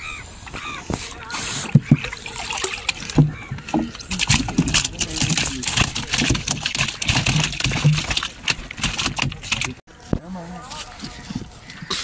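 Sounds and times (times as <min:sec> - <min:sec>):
fish slapping and splashing: 0:00.6 - 0:09.8.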